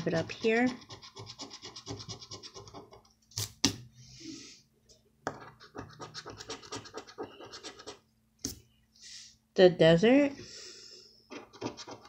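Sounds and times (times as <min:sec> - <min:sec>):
scratching lottery ticket: 0:00.0 - 0:03.0.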